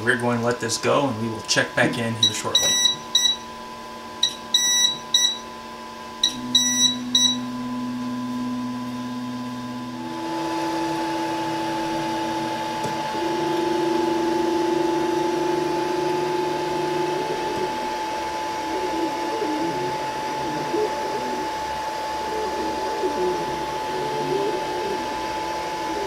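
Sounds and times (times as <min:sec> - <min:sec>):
printer motor hum with fan: 0:00.0 - 0:26.0
high electronic beeps: 0:02.2 - 0:03.5, 0:04.2 - 0:05.4, 0:06.2 - 0:07.6.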